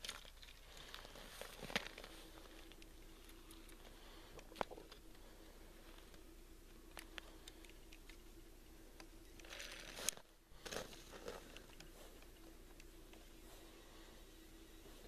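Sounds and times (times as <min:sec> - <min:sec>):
small clicks: 0:05.9 - 0:13.3.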